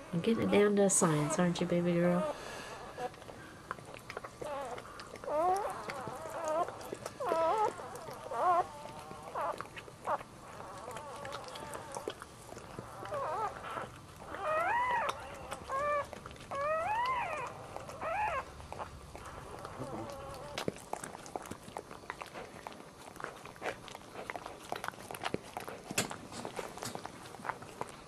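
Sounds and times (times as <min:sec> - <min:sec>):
puppy squealing: 0:04.4 - 0:20.7.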